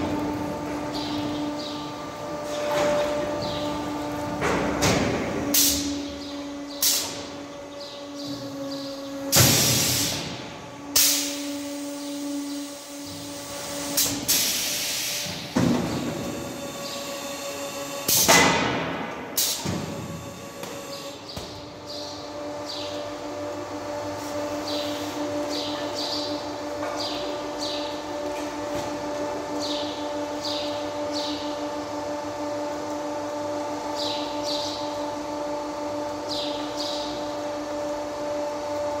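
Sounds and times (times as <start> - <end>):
machine motor humming: 0.0 - 39.0
pneumatic air hisses: 9.3 - 10.3, 11.0 - 11.5, 13.9 - 15.4.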